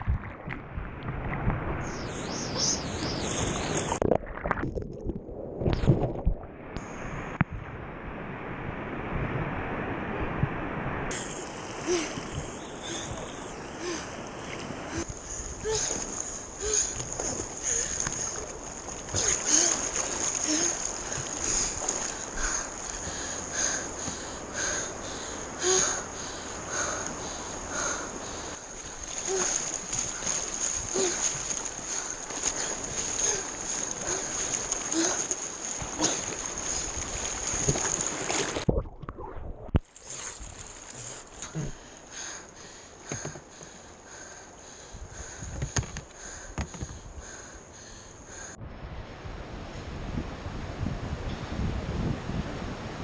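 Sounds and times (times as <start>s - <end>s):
water splashing on camera: 0.0s - 7.7s, 11.1s - 24.2s, 28.2s - 41.9s
high-pitched whine: 1.8s - 4.0s.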